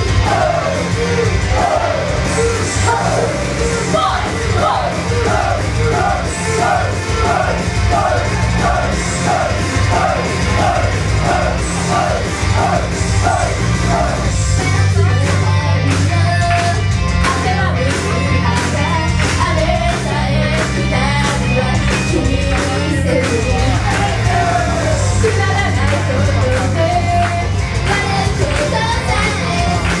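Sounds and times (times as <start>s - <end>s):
drums: 0.0s - 30.0s
women singing pop song: 14.1s - 30.0s.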